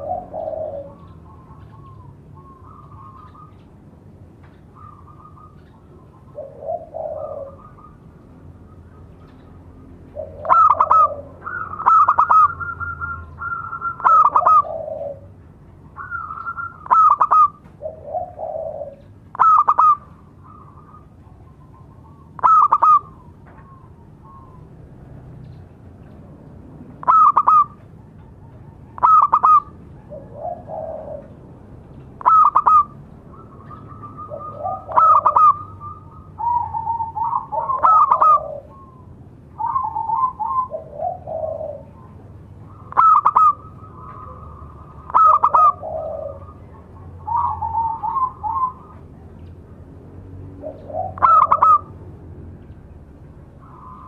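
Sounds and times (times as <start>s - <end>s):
dove cooing: 0.0s - 3.7s, 4.6s - 25.6s, 26.9s - 49.3s, 50.4s - 52.1s, 53.4s - 54.0s.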